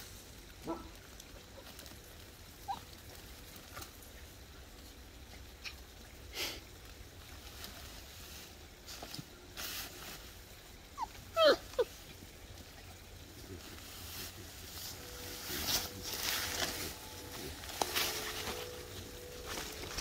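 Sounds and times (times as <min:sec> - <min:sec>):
puppies yipping: 0:02.6 - 0:03.1, 0:10.9 - 0:12.1.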